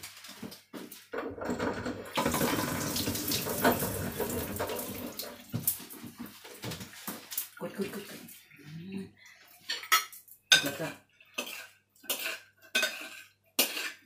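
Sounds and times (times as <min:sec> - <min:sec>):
tap water running into sink: 0:01.1 - 0:08.4.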